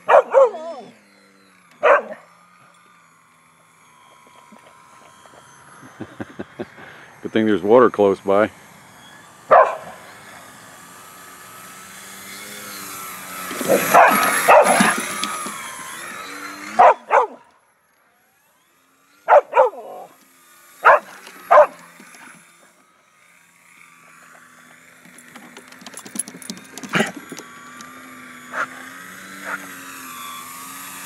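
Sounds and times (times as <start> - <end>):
dog barking excitedly: 0.0 - 0.9, 1.8 - 2.2, 9.5 - 10.0, 13.6 - 15.1, 16.8 - 17.4, 19.3 - 20.1, 20.8 - 21.8, 28.5 - 28.8
model airplane motor whining: 0.0 - 31.0.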